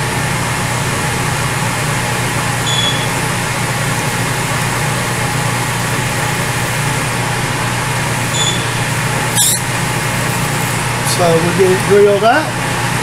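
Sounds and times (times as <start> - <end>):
milling machine spindle running: 0.1 - 13.0
drill bit squeaking: 2.6 - 3.2, 8.3 - 10.8.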